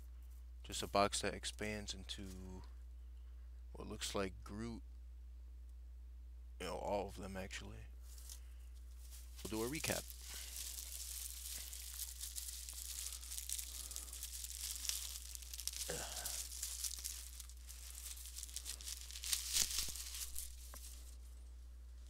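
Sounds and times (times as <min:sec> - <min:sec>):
plastic wrapping crinkling: 0:08.1 - 0:22.0.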